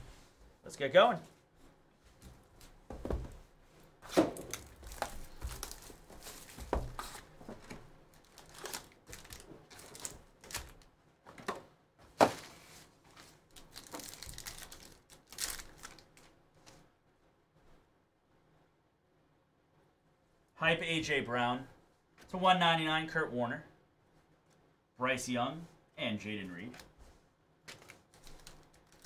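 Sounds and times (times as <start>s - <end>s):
plastic wrapping crinkling and tearing: 4.4s - 7.3s, 8.1s - 10.9s, 13.2s - 16.8s, 27.7s - 29.0s.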